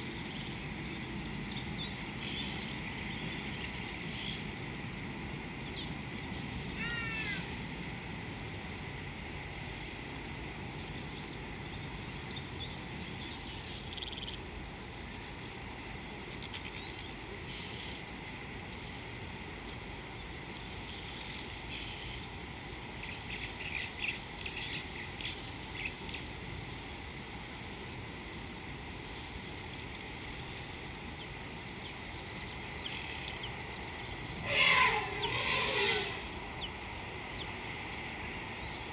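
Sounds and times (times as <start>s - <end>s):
insect chirping: 0.0s - 38.9s
steady background noise: 0.0s - 38.9s
bird calls: 6.8s - 7.6s, 31.2s - 37.6s.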